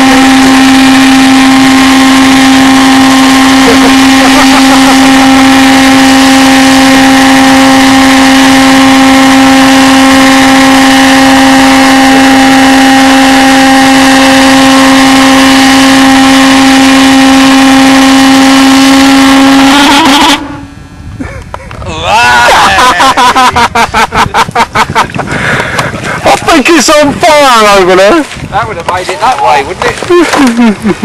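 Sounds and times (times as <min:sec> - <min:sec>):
pulsejet engine drone: 0:00.0 - 0:09.7.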